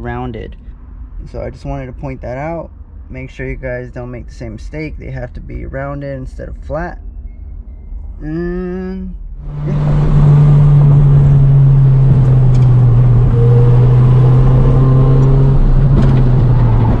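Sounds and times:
road and wind noise: 0.0s - 17.0s
car engine at high revs: 9.4s - 17.0s.

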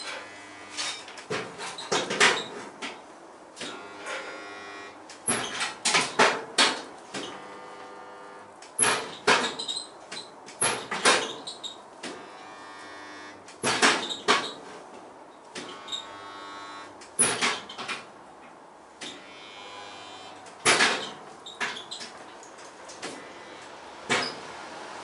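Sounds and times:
metallic clanks and knocks: 20.6s - 21.8s.

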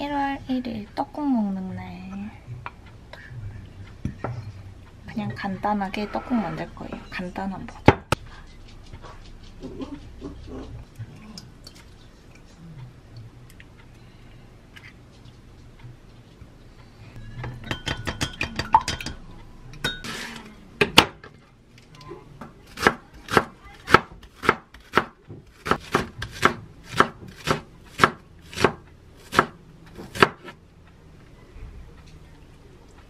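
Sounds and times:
knife chopping on wooden board: 22.7s - 30.6s.

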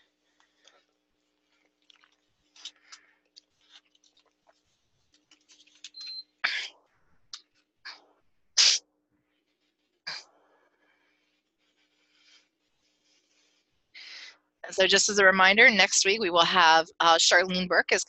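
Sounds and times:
chewing sounds: 1.4s - 5.2s
breaths and sniffs: 9.4s - 14.4s.

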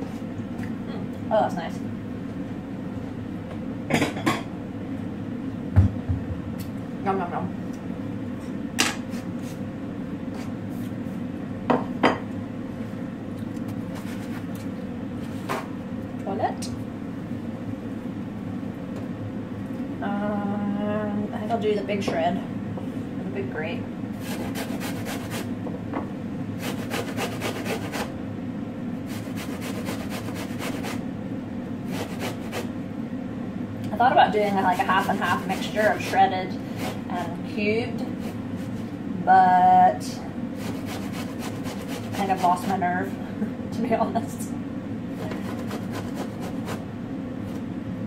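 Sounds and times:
steady low hum: 0.0s - 48.0s
pear grating on metal grater: 24.2s - 25.5s, 26.6s - 28.1s, 29.1s - 31.0s, 31.9s - 32.7s, 34.5s - 37.4s, 40.6s - 42.8s, 45.2s - 46.8s.

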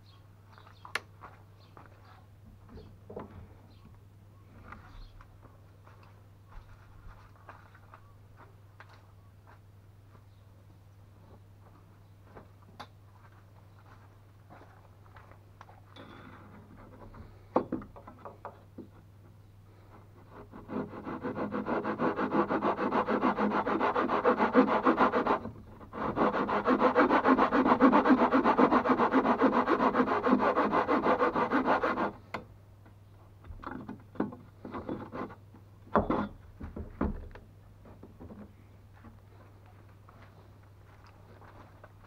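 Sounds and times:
file rasping on wood: 20.3s - 32.2s.

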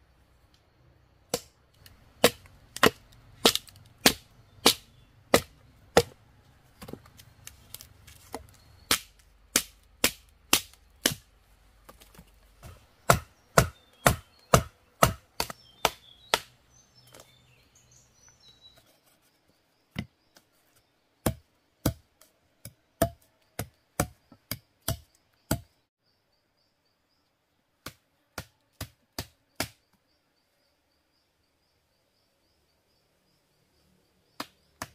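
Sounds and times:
faint birds or insects chirping: 0.0s - 34.9s
sharp chopping strikes: 2.2s - 6.2s, 8.3s - 11.3s, 12.6s - 17.2s, 22.6s - 25.7s, 27.8s - 29.8s.

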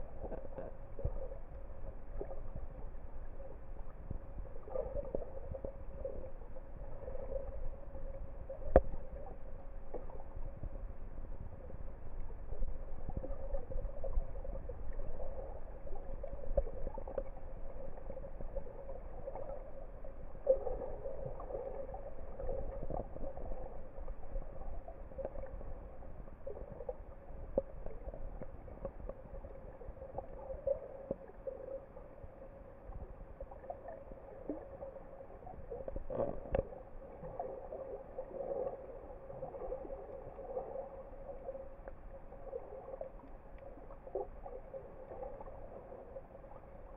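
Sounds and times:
shifting water noise: 0.0s - 46.9s
underwater hum: 0.0s - 46.9s
faint clicks: 8.5s - 9.3s.

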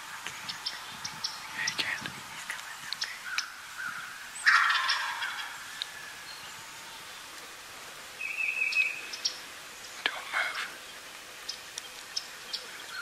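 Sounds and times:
turkey gobbling: 4.4s - 5.6s.

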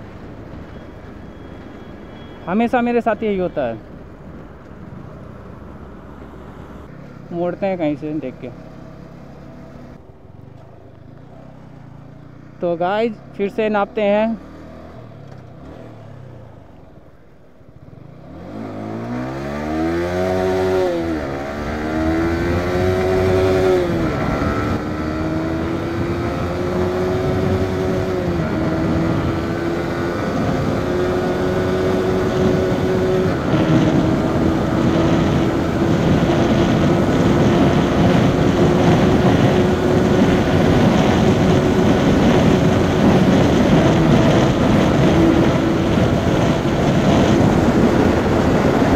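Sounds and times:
motorcycle engine accelerating: 17.8s - 48.9s
wind rushing over microphone: 18.4s - 48.9s.

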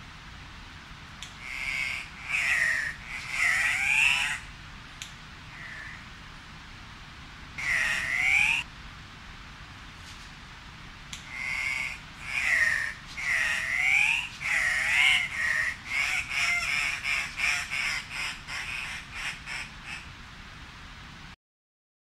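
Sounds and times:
birds calling: 1.2s - 4.5s, 5.5s - 6.2s, 7.6s - 8.7s, 11.2s - 20.1s.

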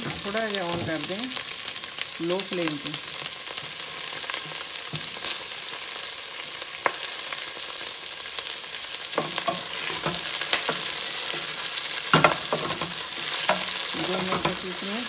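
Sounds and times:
chillies sizzling in hot oil: 0.0s - 15.0s
spoon scraping pot: 9.2s - 14.7s
wooden spoon knocking on pot: 12.1s - 14.7s.

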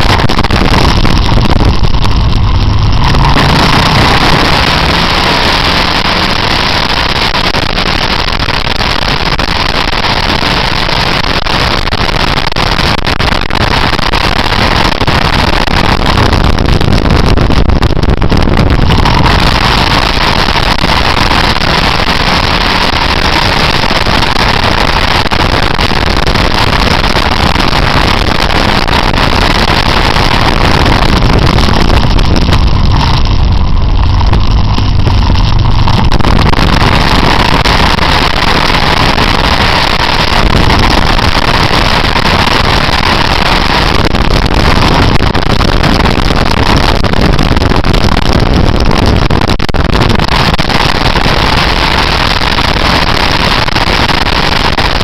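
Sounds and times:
motorcycle engine rumble: 0.0s - 55.0s
wind noise on microphone: 0.0s - 55.0s.

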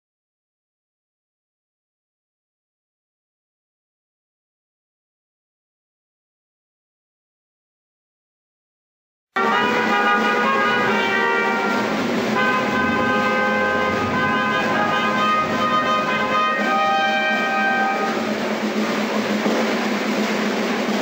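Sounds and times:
trumpet fanfare: 9.4s - 19.5s
drum: 9.4s - 21.0s.

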